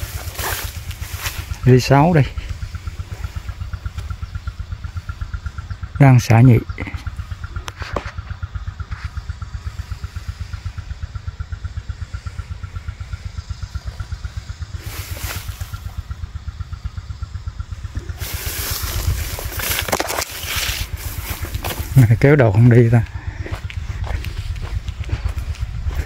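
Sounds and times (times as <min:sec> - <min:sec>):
small engine running: 0:00.0 - 0:26.0
broad rushing noise: 0:14.7 - 0:16.2, 0:17.8 - 0:23.1.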